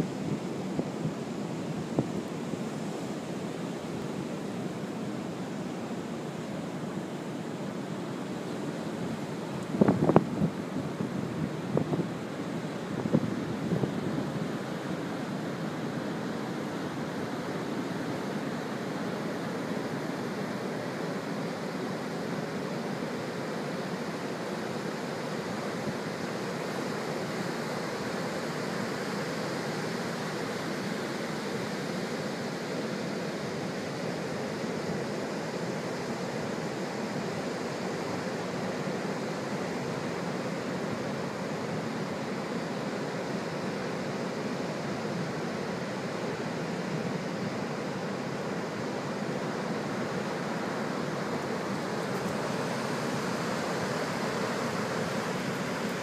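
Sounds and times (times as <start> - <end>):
surf breaking on a beach: 0.0 - 56.0
wind gusts on microphone: 7.8 - 18.6.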